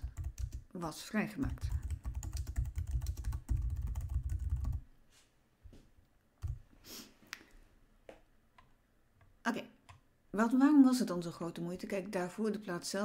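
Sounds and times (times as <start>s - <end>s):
typing on computer keyboard: 0.0s - 0.6s, 1.5s - 4.8s.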